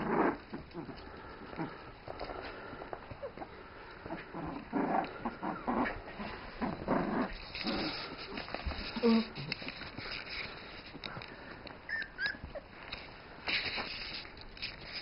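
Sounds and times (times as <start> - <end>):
puppies whimpering and squeaking: 11.9 - 12.8.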